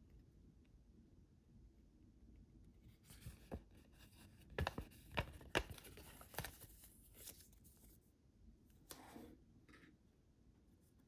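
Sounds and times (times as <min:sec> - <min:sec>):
paper rustling and crinkling: 0:02.9 - 0:08.0.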